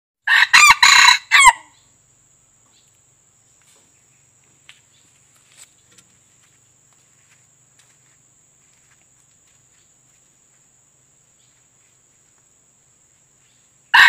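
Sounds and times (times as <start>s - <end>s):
rooster crowing: 0.2s - 1.8s.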